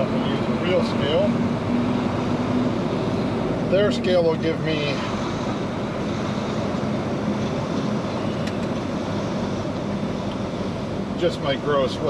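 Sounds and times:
road and cab noise: 0.0s - 12.0s
truck diesel engine hum: 0.0s - 12.0s.

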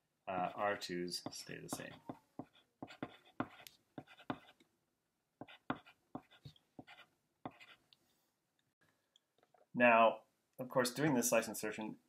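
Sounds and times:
pen scratching on paper: 0.4s - 4.6s, 5.4s - 7.8s.

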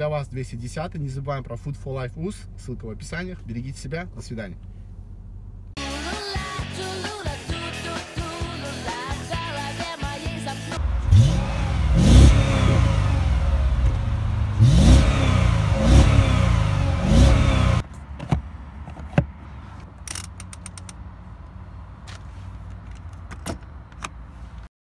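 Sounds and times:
car engine idling: 0.0s - 17.9s
car engine revving: 10.5s - 17.8s
sharp clicks: 20.0s - 21.0s.

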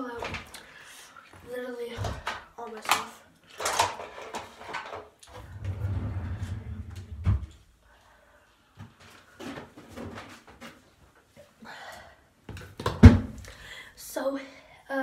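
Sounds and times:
containers bumping and rustling: 2.0s - 5.2s.

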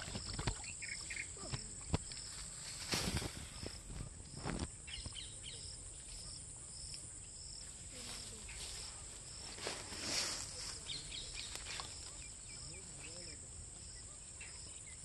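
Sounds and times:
crickets droning: 0.0s - 15.0s
short insect chirp: 0.0s - 15.0s
grass rustling: 1.8s - 5.2s, 7.7s - 13.0s.

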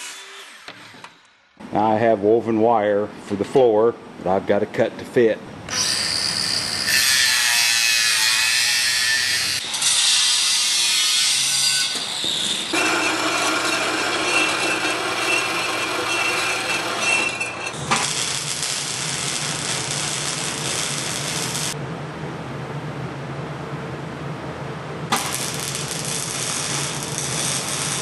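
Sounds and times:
shop metalwork noise: 0.0s - 1.7s, 5.7s - 21.8s, 25.1s - 28.0s
angle grinder cutting wire mesh: 5.7s - 21.8s, 25.1s - 28.0s
low hum: 17.6s - 28.0s
electric arc welding hiss: 17.7s - 21.8s, 25.1s - 28.0s.

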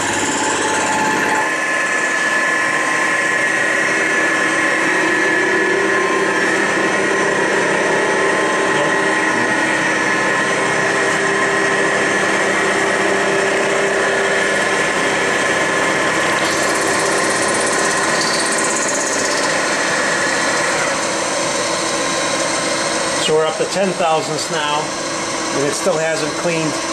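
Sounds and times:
high whine: 0.0s - 26.9s
milling machine running: 0.0s - 26.9s.

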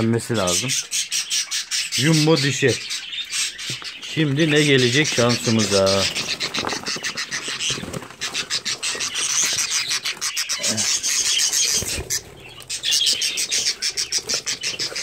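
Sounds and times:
budgerigars squawking and chirping: 0.0s - 15.0s
scratching against cardboard: 3.8s - 15.0s.

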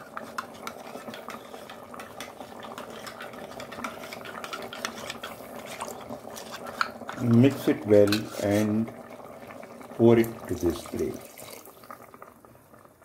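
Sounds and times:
curry bubbling in pressure cooker: 0.0s - 13.0s.

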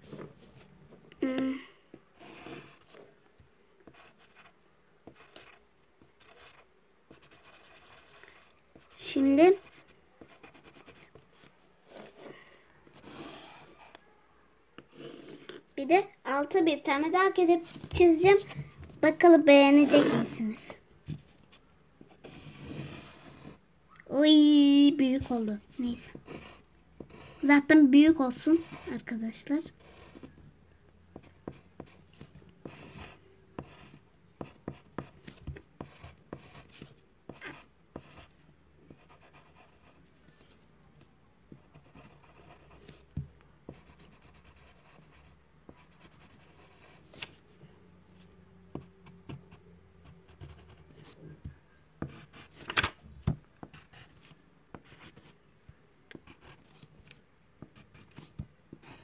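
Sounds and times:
drawing tool scratching on paper: 6.2s - 11.2s, 12.9s - 14.0s, 22.2s - 23.6s, 43.7s - 47.1s.

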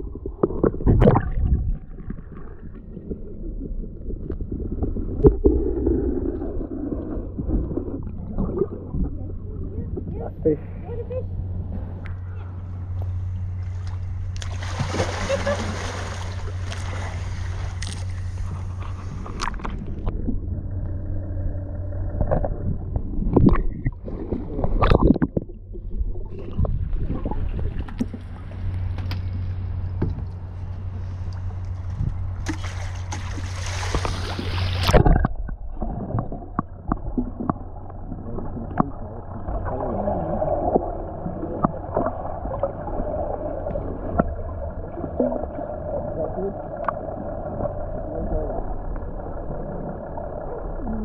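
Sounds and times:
water sloshing and gurgling: 0.0s - 51.0s
sharp water splashes: 14.4s - 18.0s, 32.4s - 35.2s.

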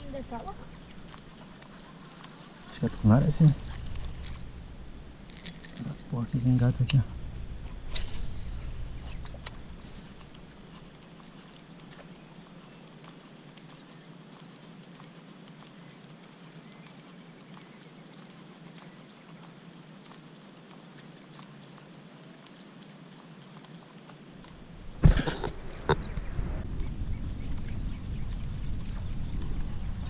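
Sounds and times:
high-pitched insect drone: 0.0s - 13.0s, 24.3s - 26.6s
faint ticks: 0.0s - 24.7s
low rumble: 2.8s - 11.0s, 24.6s - 30.0s.

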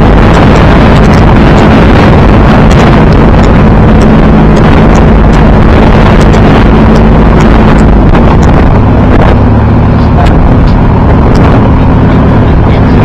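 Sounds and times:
motorboat engine running: 0.0s - 13.0s
wind buffeting microphone: 0.0s - 13.0s.

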